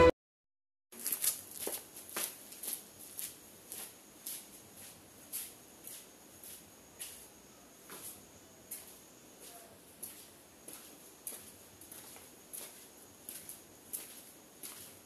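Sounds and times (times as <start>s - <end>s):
footsteps on concrete: 1.0s - 7.2s, 7.9s - 15.0s.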